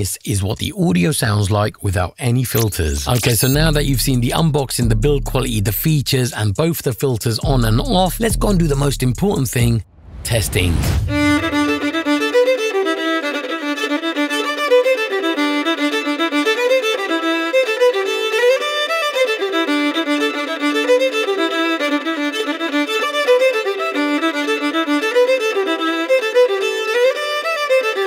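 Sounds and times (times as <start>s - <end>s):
solo violin melody: 11.1s - 28.0s.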